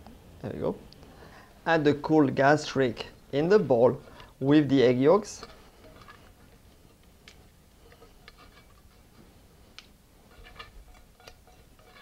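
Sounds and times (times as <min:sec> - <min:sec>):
spatula scraping a saucepan: 0:07.8 - 0:09.1, 0:10.3 - 0:12.0.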